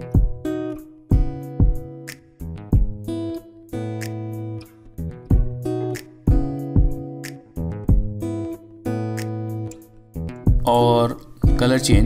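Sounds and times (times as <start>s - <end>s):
low drum beat: 0.0s - 0.4s, 1.1s - 1.9s, 2.8s - 3.0s, 5.3s - 5.6s, 6.3s - 7.0s, 7.9s - 8.2s, 10.5s - 10.7s, 11.4s - 12.0s
strummed acoustic guitar: 0.0s - 12.0s.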